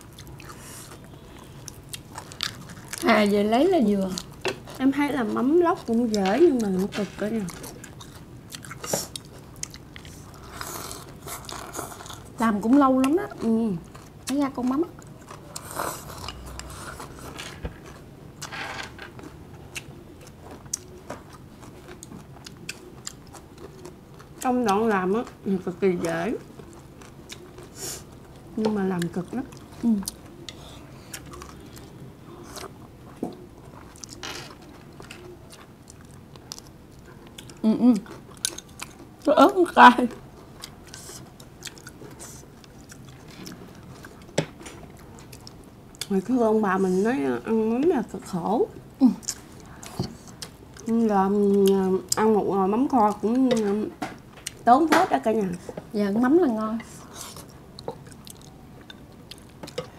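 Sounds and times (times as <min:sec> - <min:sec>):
people chewing food: 0:00.0 - 0:59.9.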